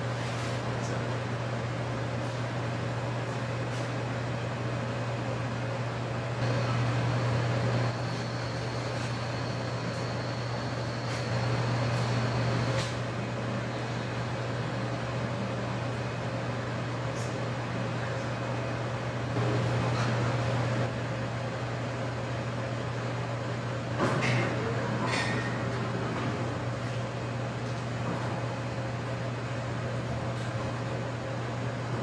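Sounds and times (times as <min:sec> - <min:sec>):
ventilation machinery hum: 0:00.0 - 0:32.0
faint high whine: 0:06.4 - 0:15.0.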